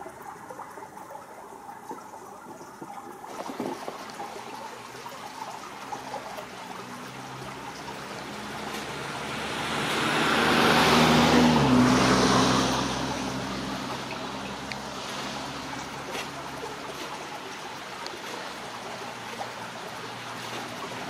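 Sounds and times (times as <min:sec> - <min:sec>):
vehicle passing: 0:04.4 - 0:21.0.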